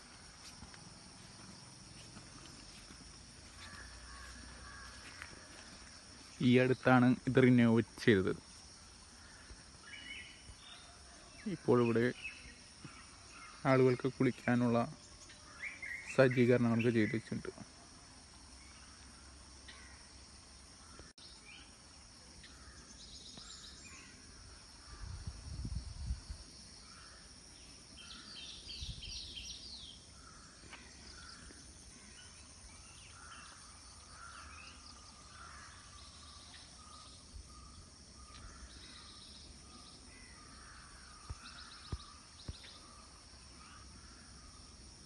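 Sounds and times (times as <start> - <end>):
birds chirping: 0.0 - 17.8, 26.8 - 44.9
insects buzzing: 0.0 - 45.0.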